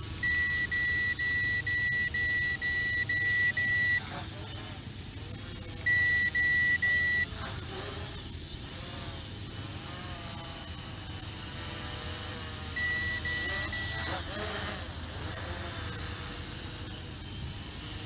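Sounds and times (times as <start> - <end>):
drone propellers whining: 0.0 - 18.0
high electronic beep: 0.2 - 4.0, 5.9 - 7.3, 12.8 - 14.1.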